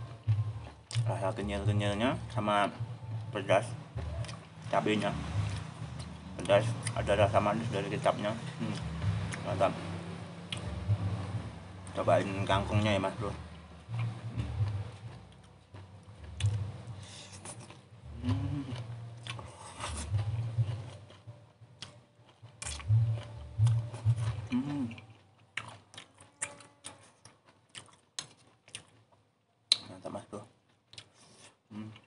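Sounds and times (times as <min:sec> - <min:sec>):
person slurping and chewing: 0:16.2 - 0:29.0
person humming mm: 0:18.1 - 0:20.2, 0:23.6 - 0:25.2, 0:31.7 - 0:32.0.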